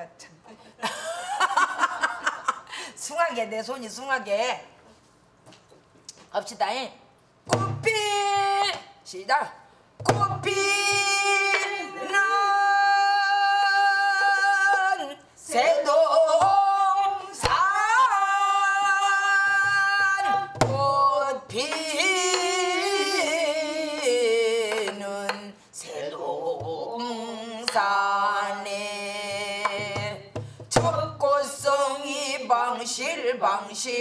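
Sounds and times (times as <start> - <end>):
woman singing folk song: 10.1 - 34.0.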